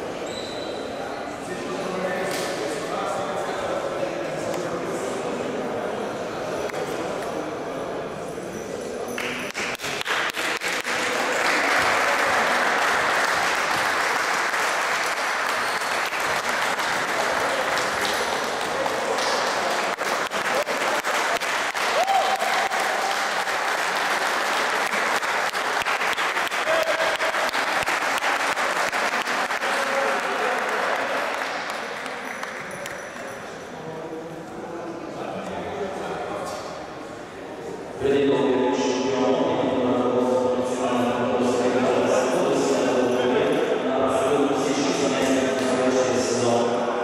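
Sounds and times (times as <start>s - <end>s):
crowd applauding: 9.2s - 33.2s.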